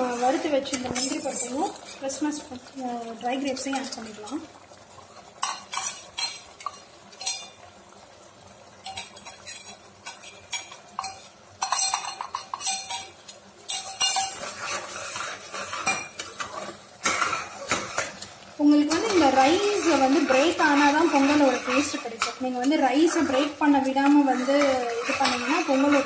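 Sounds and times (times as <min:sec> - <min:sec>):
metal spoons clinking on cookware: 0:00.0 - 0:02.2, 0:05.4 - 0:07.6, 0:08.8 - 0:14.8, 0:15.6 - 0:18.0, 0:18.7 - 0:26.0
spoon scraping pot: 0:00.0 - 0:02.2, 0:05.4 - 0:07.6, 0:08.8 - 0:26.0.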